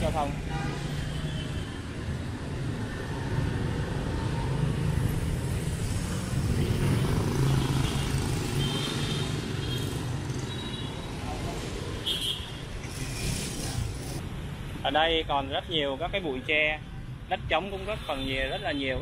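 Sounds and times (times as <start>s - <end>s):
scooter engines passing: 0.8s - 14.3s.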